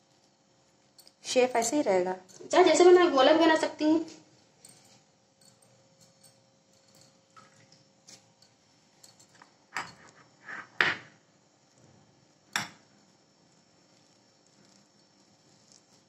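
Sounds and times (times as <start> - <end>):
metal spoon clinking against bowl: 4.6 - 7.3, 8.1 - 10.2.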